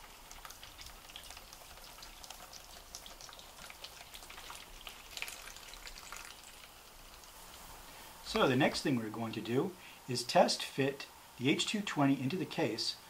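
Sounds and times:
coolant dripping into a plastic tub: 0.0s - 7.6s.

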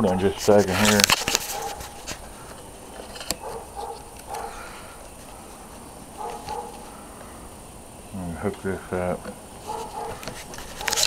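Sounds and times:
camera handling clicks and rustles: 0.7s - 5.4s, 10.0s - 11.0s
faint animal calls: 1.4s - 8.2s, 9.6s - 11.0s.

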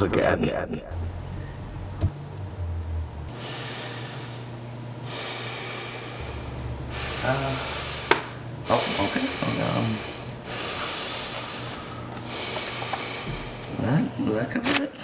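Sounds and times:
steady low hum: 0.0s - 15.0s
person breathing heavily through nose: 3.3s - 14.0s.

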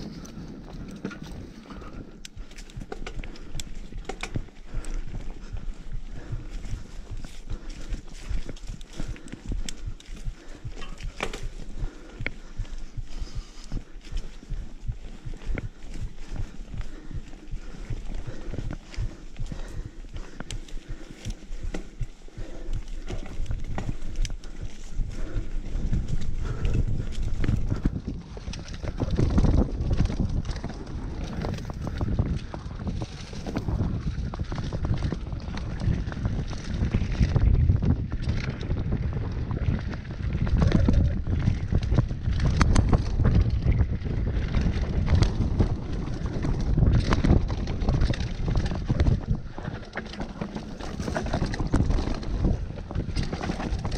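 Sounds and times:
constant low rumble: 0.0s - 53.9s
tyres over dirt and stones: 0.0s - 53.9s
wind buffeting microphone: 0.0s - 53.9s
bike knocks and rattles: 18.2s - 53.9s.

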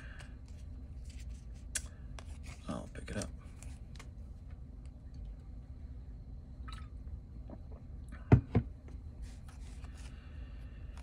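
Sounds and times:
cards and packaging rustling: 0.2s - 4.2s
low hum: 3.2s - 11.0s.

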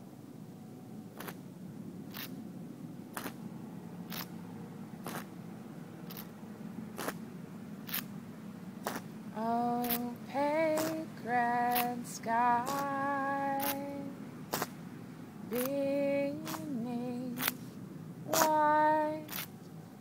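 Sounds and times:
low steady hum: 0.0s - 20.0s
sharp evenly spaced clicks: 3.1s - 4.4s, 5.0s - 5.4s, 6.0s - 6.4s, 9.8s - 14.8s, 15.5s - 17.6s, 18.3s - 18.7s
woman singing: 9.4s - 14.2s, 15.5s - 17.6s, 18.3s - 19.4s.

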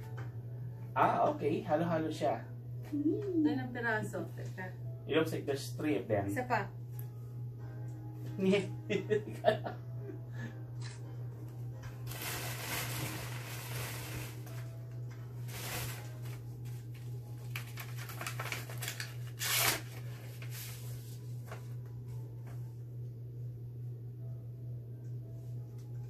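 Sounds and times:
steady low hum: 0.0s - 26.0s
paper rustling and tearing: 12.0s - 14.7s, 15.5s - 16.4s, 17.4s - 21.6s.

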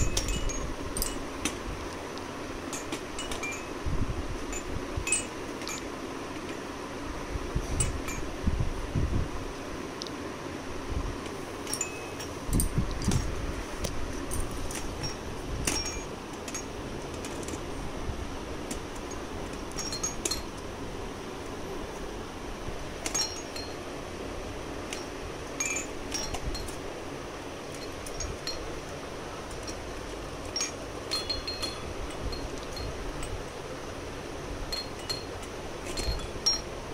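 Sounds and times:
toy chime tinkling: 0.0s - 1.3s, 2.7s - 3.8s, 11.7s - 12.7s, 30.5s - 33.4s.

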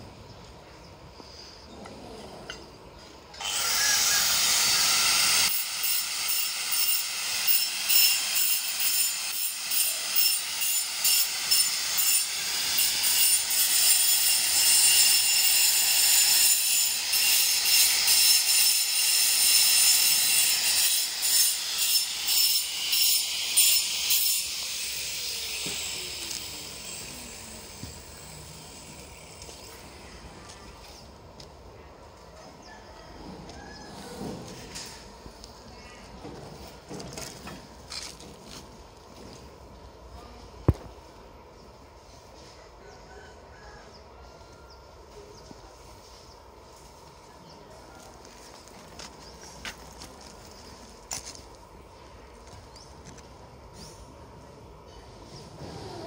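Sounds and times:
angle grinder cutting tiles: 3.4s - 27.4s.

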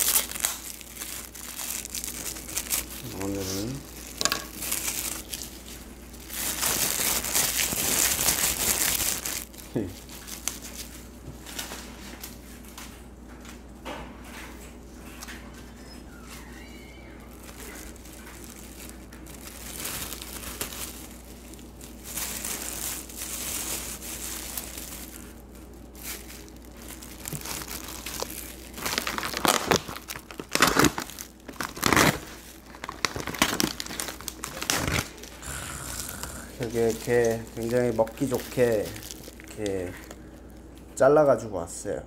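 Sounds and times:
plastic packaging crinkling: 0.0s - 12.6s, 15.2s - 41.0s.

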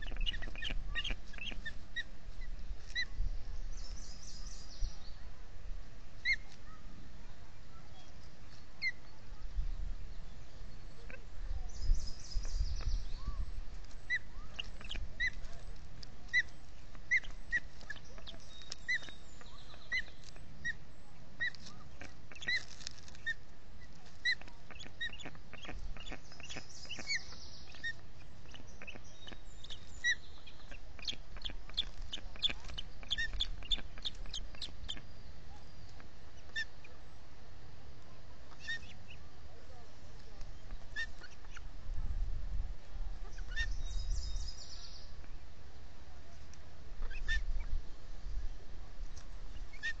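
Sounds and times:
ospreys chirping: 0.0s - 3.1s, 16.3s - 23.4s, 24.2s - 35.2s
wind rumble on microphone: 0.0s - 6.1s, 9.0s - 16.6s, 40.4s - 45.4s, 46.2s - 50.0s.

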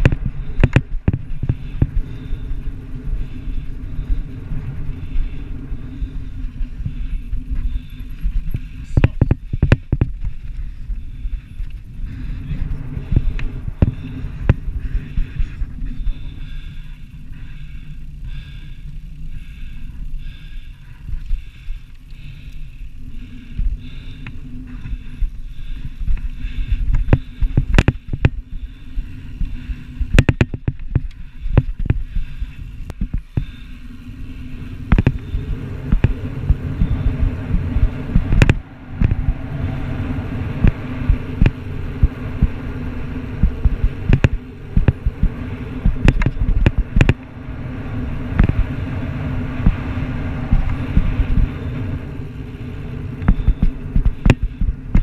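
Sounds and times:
bike knocks and rattles: 0.0s - 3.3s, 6.8s - 11.9s, 26.1s - 28.6s, 29.4s - 33.7s
bike tyres rumbling on sand: 0.0s - 55.0s
rushing air: 0.0s - 55.0s.

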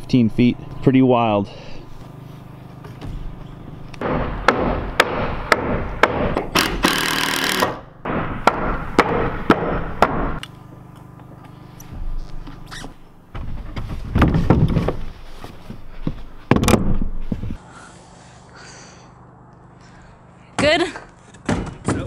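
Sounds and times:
tool knocking on wooden panels: 4.0s - 10.4s
rasping tool burst: 6.5s - 7.9s.

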